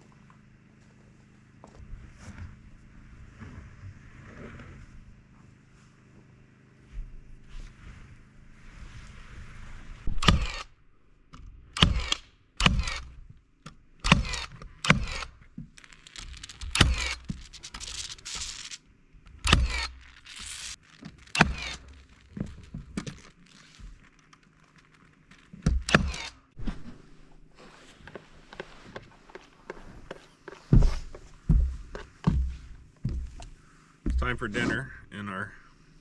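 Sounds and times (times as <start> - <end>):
nail gun shots: 10.1 - 10.7, 11.7 - 13.1, 14.0 - 15.4, 16.6 - 18.5, 19.4 - 20.6, 21.3 - 21.9, 25.7 - 26.4.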